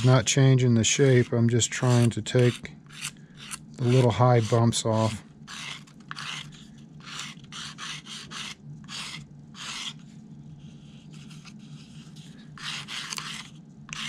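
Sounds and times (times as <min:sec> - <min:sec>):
sandpaper rubbing on plastic: 0:00.8 - 0:10.0, 0:12.6 - 0:14.0.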